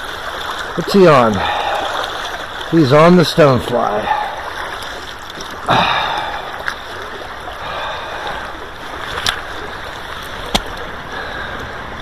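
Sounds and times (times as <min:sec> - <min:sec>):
water splash: 0:00.0 - 0:11.2
river current running: 0:00.0 - 0:12.0.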